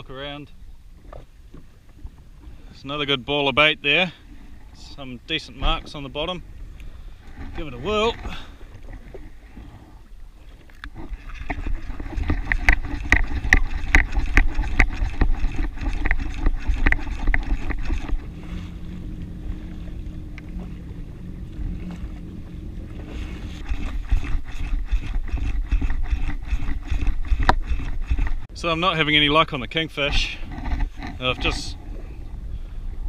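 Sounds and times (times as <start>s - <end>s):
water lapping against hull: 0.0s - 33.0s
sharp clicks and knocks: 10.8s - 18.2s, 23.6s - 28.5s, 30.0s - 31.7s
wind buffeting microphone: 10.9s - 33.0s.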